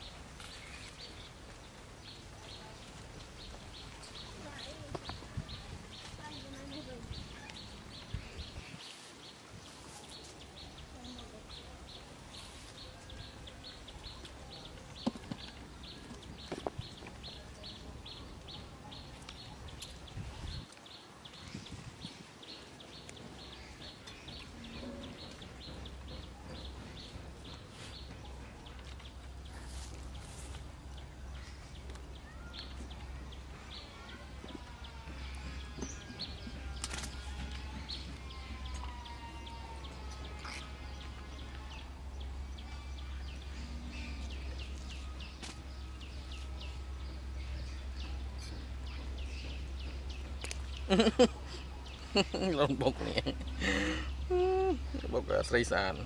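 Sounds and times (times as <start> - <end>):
low wind-like rumble: 15.8 - 22.6.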